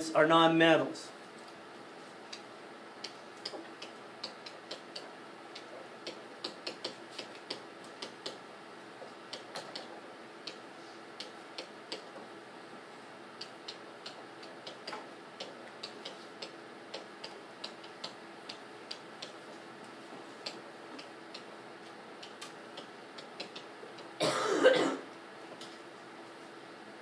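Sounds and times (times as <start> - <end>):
person coughing: 24.2 - 25.1.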